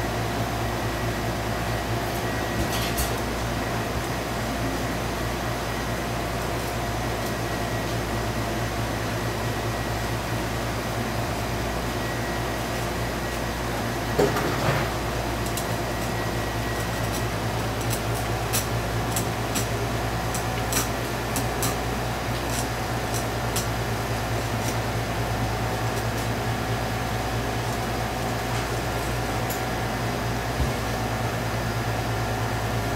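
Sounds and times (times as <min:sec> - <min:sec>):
low machine hum: 0:00.0 - 0:32.9.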